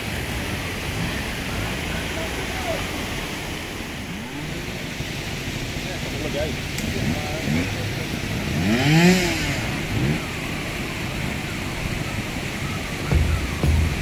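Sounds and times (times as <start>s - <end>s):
motorcycle engine revving: 5.4s - 14.0s
low throbbing music: 13.0s - 14.0s.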